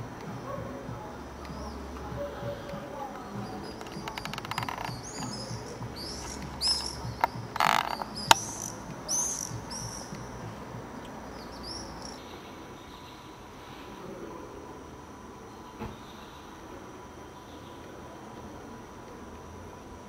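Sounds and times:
bird chirping: 0.0 - 13.5
sharp clicks: 1.4 - 12.2.

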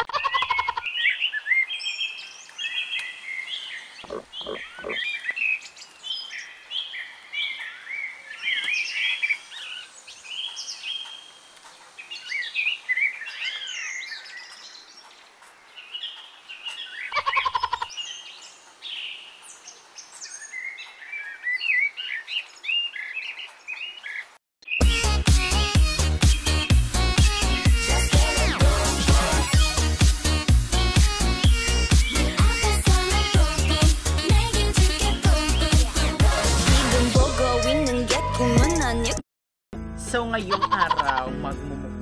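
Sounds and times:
birds chirping: 0.0 - 37.9
low pulsing bird call: 4.0 - 5.3.

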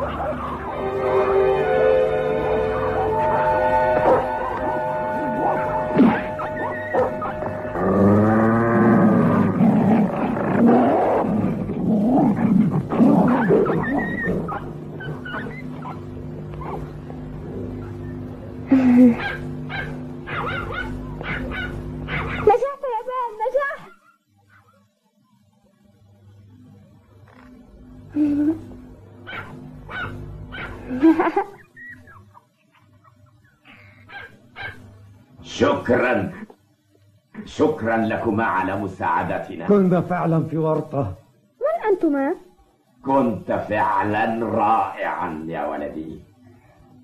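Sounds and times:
dog yapping: 0.0 - 0.7, 4.0 - 7.8, 13.2 - 16.9, 19.2 - 22.6, 23.6 - 24.9, 29.3 - 30.8, 31.6 - 34.8
wolves snarling and yelping: 0.0 - 0.9, 3.9 - 17.0, 19.1 - 22.5, 23.6 - 24.9, 29.2 - 34.9
cartoon background music: 0.0 - 8.9
low held tones: 0.0 - 22.1
high whines: 0.0 - 22.7.

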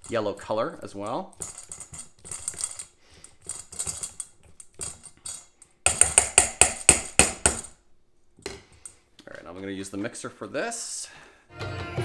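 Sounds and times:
utensil beating in a metal bowl: 0.0 - 7.8.

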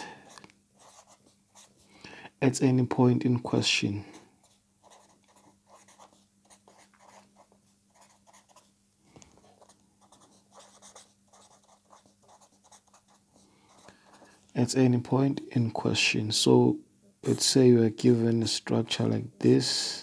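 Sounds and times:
faint steady hum: 0.0 - 20.0
pen scratching on paper: 0.2 - 1.7, 4.4 - 8.7, 9.5 - 14.3.

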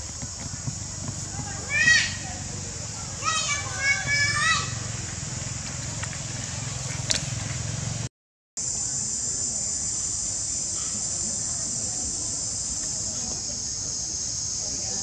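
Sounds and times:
high-pitched insect drone: 8.6 - 15.0.

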